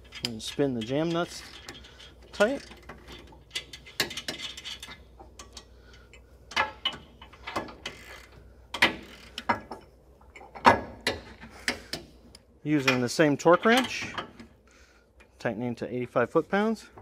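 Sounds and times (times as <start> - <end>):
metal tools clanking: 0.0 - 5.7.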